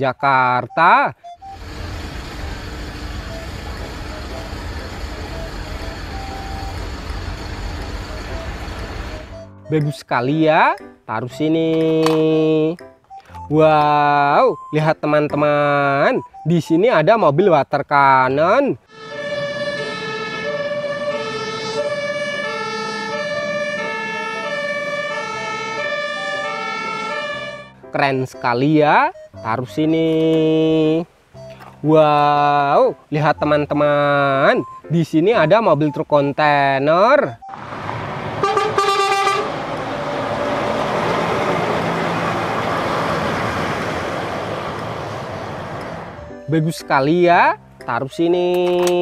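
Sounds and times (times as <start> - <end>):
steady high tone: 0.6 - 10.0, 18.9 - 25.6
two-tone emergency siren: 0.8 - 9.8, 18.9 - 27.8, 37.1 - 39.5
diesel truck engine: 1.2 - 9.8, 37.3 - 46.5
tyre and road noise: 1.4 - 9.5, 37.4 - 46.6.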